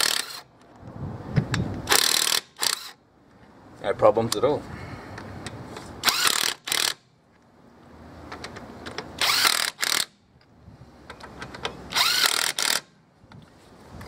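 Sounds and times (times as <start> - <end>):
impact driver rattling on wheel nuts: 0.0 - 0.5, 1.9 - 3.0, 6.0 - 7.0, 9.0 - 10.2, 11.3 - 13.0.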